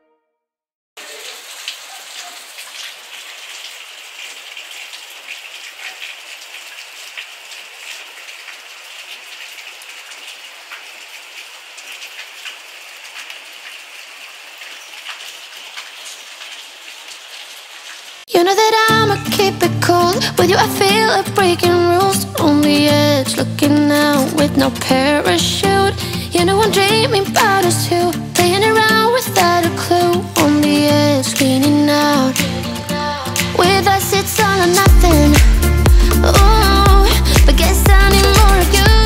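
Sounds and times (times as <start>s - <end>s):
rain hissing: 1.0s - 18.3s, 22.7s - 39.0s
raindrops pattering: 1.0s - 18.3s, 33.4s - 39.0s.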